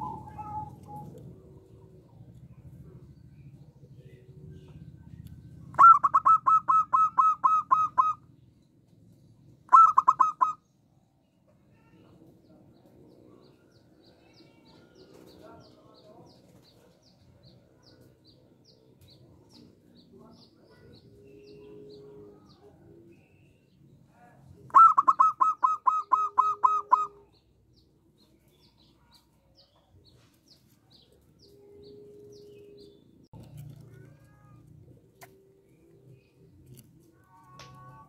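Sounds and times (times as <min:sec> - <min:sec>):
dove cooing: 0:00.0 - 0:03.1, 0:05.6 - 0:08.2, 0:09.7 - 0:10.6, 0:24.6 - 0:27.4, 0:31.0 - 0:33.0.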